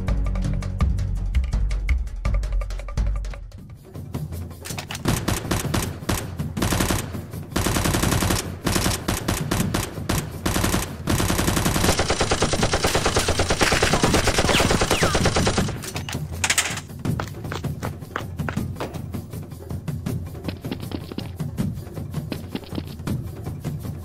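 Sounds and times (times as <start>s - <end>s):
machine-gun fire: 5.0s - 15.8s.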